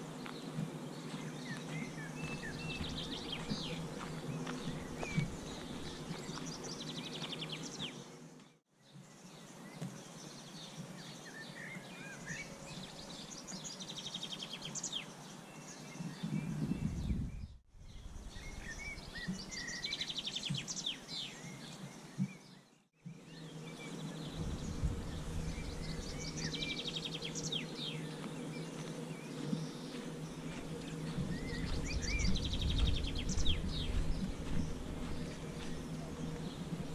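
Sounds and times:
birds chirping and trilling: 0.0s - 36.9s
outdoor background noise: 0.0s - 36.9s
low rumble: 24.0s - 28.0s, 30.0s - 36.9s.

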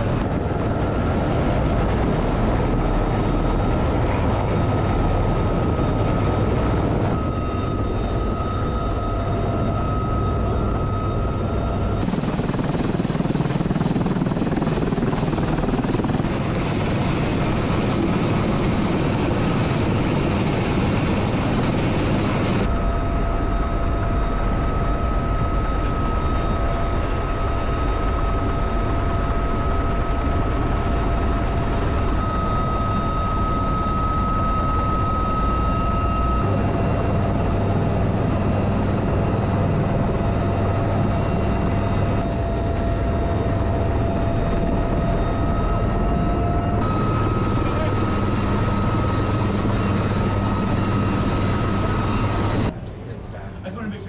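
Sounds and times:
helicopter engines and rotor: 0.0s - 54.0s
high turbine whine: 0.0s - 54.0s.

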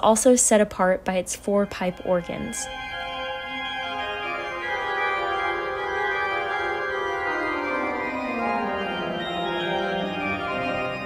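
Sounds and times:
pipe organ chords: 1.6s - 11.0s.

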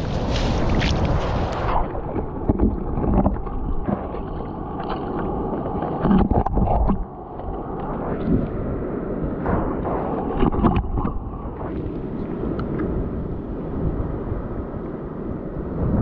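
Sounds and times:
shallow seawater splashing: 0.0s - 12.5s
muffled underwater sloshing: 0.0s - 13.2s.

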